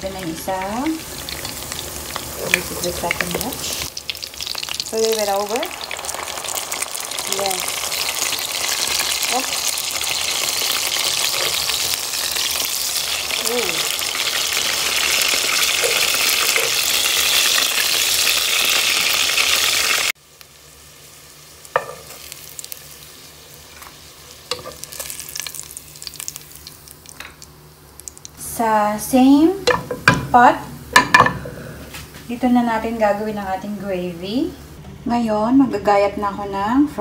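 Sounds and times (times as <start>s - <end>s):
patties sizzling in hot oil: 0.0s - 31.5s.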